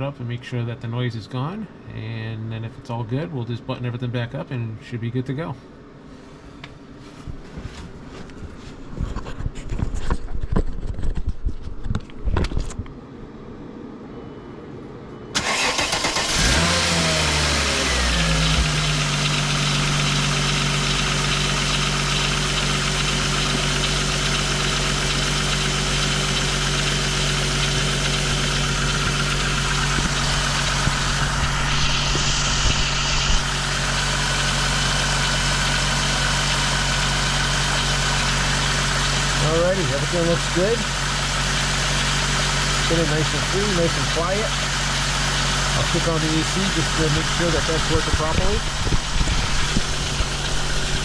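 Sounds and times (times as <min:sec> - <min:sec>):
engine cranking and idling: 0:15.3 - 0:51.0.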